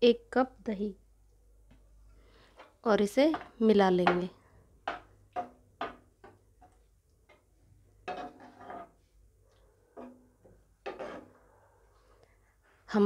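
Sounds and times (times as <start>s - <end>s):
metal spatula scraping a pan: 8.0s - 9.1s, 10.0s - 11.4s.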